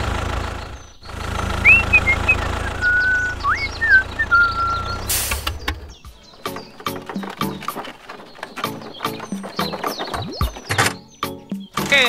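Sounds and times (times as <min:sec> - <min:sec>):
tractor engine chugging: 0:00.0 - 0:12.0
person whistling: 0:01.6 - 0:05.1
burst of hiss: 0:05.1 - 0:05.5.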